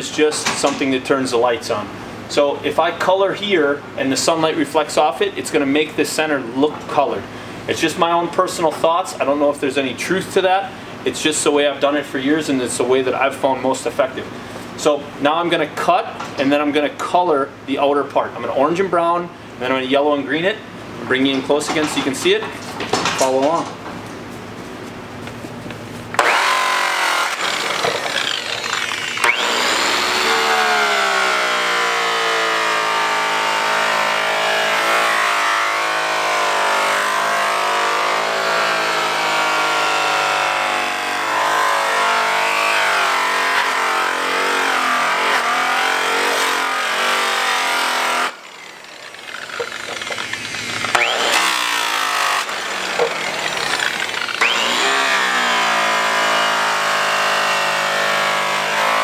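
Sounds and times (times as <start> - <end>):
angle grinder polishing metal: 26.2 - 59.0.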